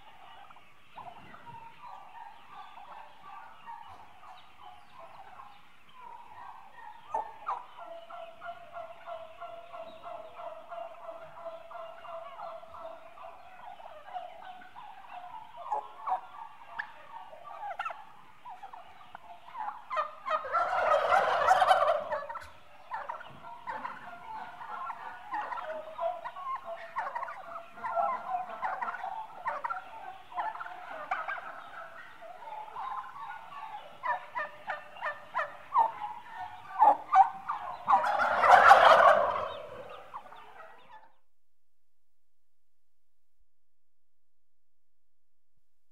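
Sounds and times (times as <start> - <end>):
turkeys chattering: 0.0 - 41.2
turkey loud outbursts: 19.6 - 22.5, 30.4 - 41.0.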